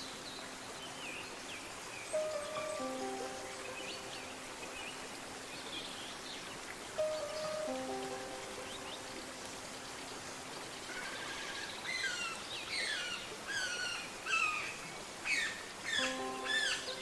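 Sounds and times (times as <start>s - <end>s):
held low music note: 7.0s - 9.8s.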